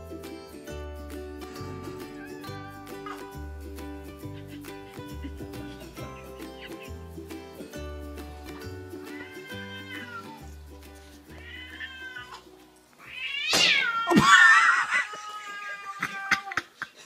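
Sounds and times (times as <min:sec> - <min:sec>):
music with meow-like notes: 0:00.0 - 0:16.6
cat yowling: 0:02.1 - 0:03.3, 0:09.0 - 0:10.5, 0:11.3 - 0:12.4, 0:13.0 - 0:16.7.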